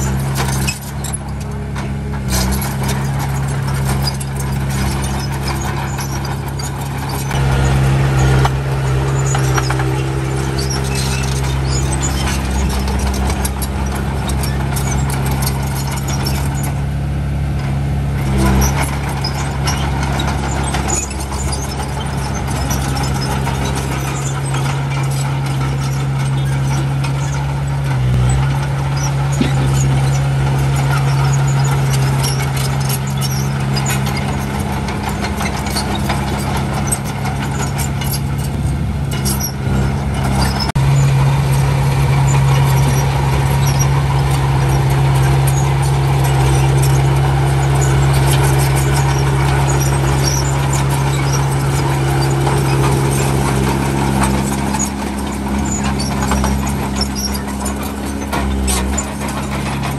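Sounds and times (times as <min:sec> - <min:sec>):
heavy diesel engines running: 0:00.0 - 0:59.9
metallic clicks and squeaks: 0:00.0 - 0:59.9.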